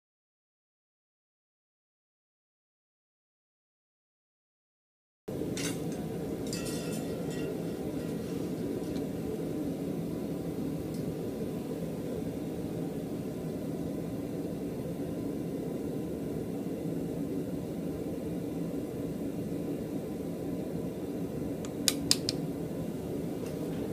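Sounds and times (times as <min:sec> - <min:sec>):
blower rushing noise: 0:05.3 - 0:17.5.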